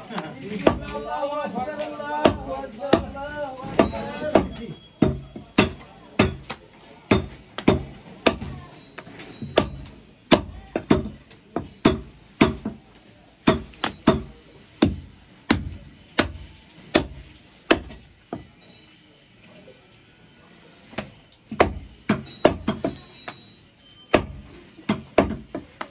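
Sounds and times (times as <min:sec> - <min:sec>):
cleaver chopping on wooden block: 0:02.2 - 0:03.2, 0:03.8 - 0:08.6, 0:09.5 - 0:12.8, 0:13.4 - 0:18.5, 0:21.0 - 0:23.0, 0:24.2 - 0:25.9.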